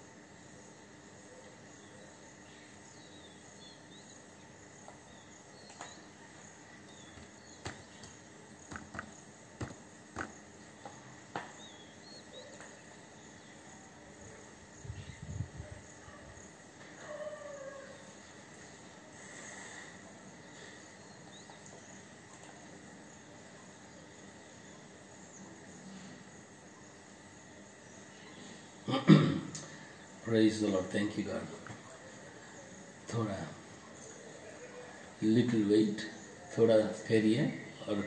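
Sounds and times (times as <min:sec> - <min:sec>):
sharp clicks and knocks: 0:07.1 - 0:11.6.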